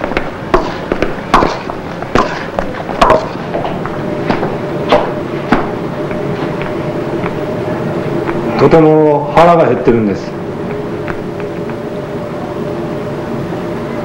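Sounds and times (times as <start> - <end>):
sharp knocks: 0.0 - 7.4
faint steady hum: 0.0 - 14.0.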